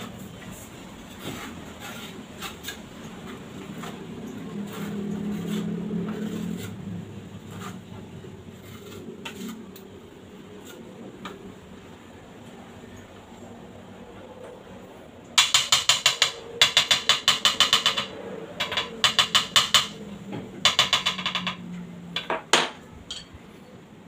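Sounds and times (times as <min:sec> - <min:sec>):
trowel scraping and clicking on tile: 0:08.6 - 0:09.9, 0:15.4 - 0:20.0.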